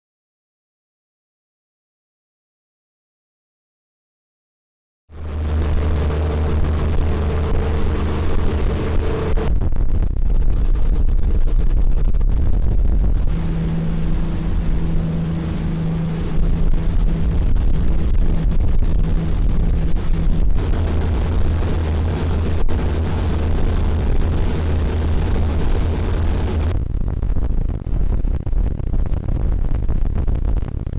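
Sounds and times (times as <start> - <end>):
boat engines droning: 5.2 - 9.5, 13.2 - 26.7.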